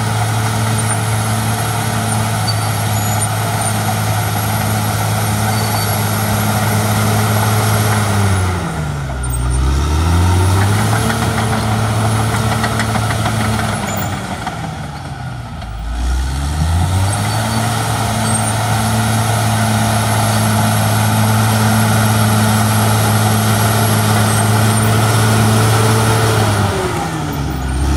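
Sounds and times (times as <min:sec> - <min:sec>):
bulldozer diesel engine: 0:00.0 - 0:27.9.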